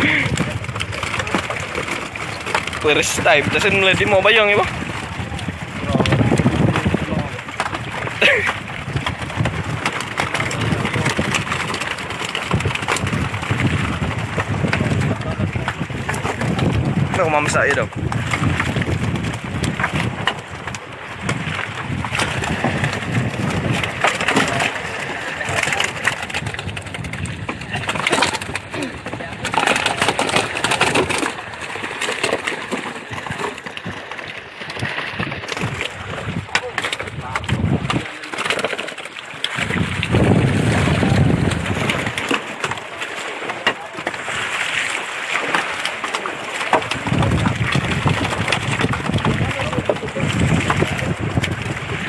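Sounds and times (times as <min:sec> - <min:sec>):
knocks and rustles of wet net: 0:00.0 - 0:52.0
water splashing in a plastic basin: 0:00.0 - 0:52.0.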